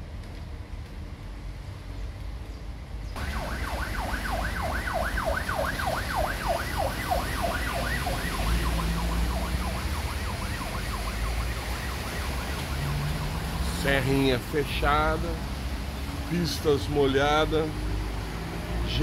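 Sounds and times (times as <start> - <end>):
background noise rush: 0.0 - 19.0
emergency siren yelping: 3.2 - 14.1.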